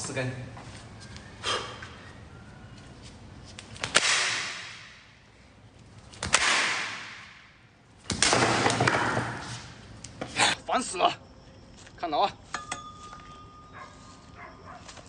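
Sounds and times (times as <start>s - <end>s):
kicks cracking wooden slats: 6.2s - 9.5s.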